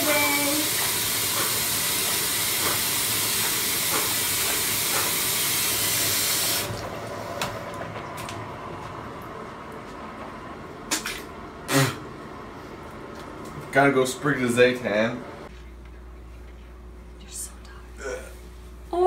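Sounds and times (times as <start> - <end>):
water running: 0.0 - 7.1.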